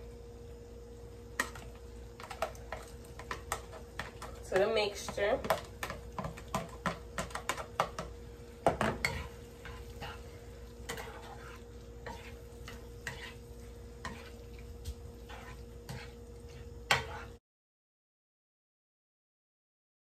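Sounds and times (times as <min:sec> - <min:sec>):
faint steady hum: 0:00.0 - 0:17.4
food sizzling: 0:00.0 - 0:17.4
spatula scraping a frying pan: 0:01.4 - 0:17.4.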